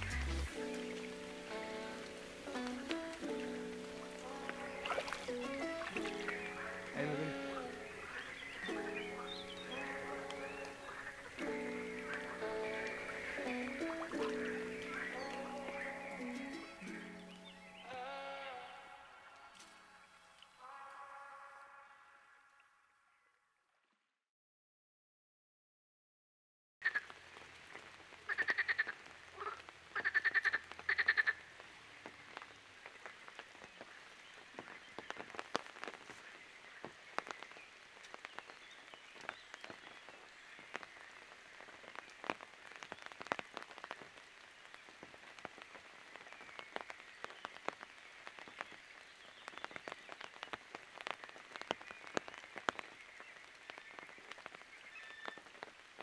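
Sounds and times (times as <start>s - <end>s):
frogs rattling calls: 3.8s - 17.8s, 28.3s - 31.4s
faint frog chorus: 4.3s - 16.4s, 28.3s - 44.0s.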